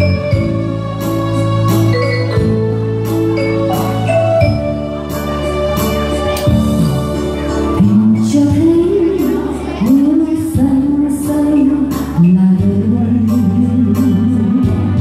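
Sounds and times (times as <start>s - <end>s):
electronic keyboard chords: 0.0s - 15.0s
woman singing ballad: 7.6s - 15.0s.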